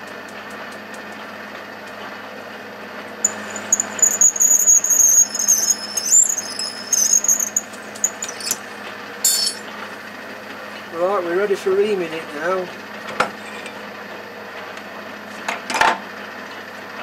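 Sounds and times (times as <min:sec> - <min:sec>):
drill squealing: 0:03.3 - 0:09.7
lathe running: 0:03.3 - 0:10.2.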